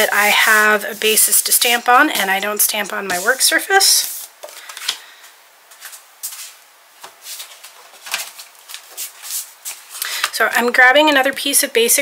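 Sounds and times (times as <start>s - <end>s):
paper rustling and tapping: 7.0s - 10.4s.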